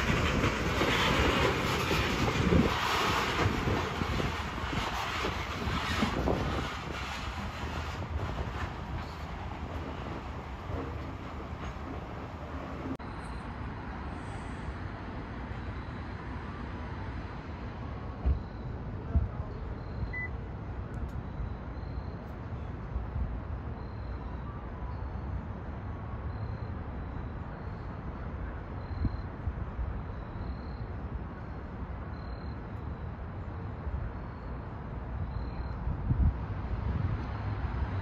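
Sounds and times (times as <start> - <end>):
low city rumble: 0.0 - 38.0
faint short high beeps: 19.8 - 20.4.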